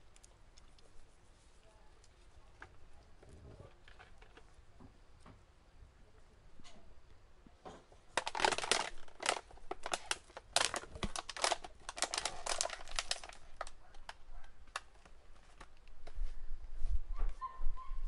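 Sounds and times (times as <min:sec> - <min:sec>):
cockatoo cracking and chewing food: 0:00.0 - 0:05.4, 0:07.8 - 0:16.2.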